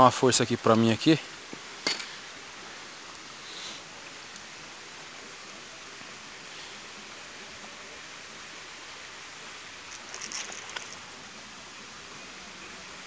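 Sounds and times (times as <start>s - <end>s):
outdoor background hiss: 0.0s - 13.0s
crackling rustles: 9.8s - 11.2s.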